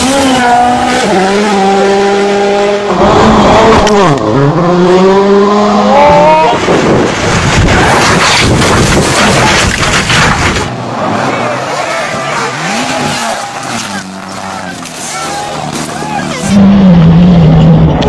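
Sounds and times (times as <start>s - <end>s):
rally car engine revving: 0.0s - 18.0s
car sliding through gravel: 7.2s - 16.5s.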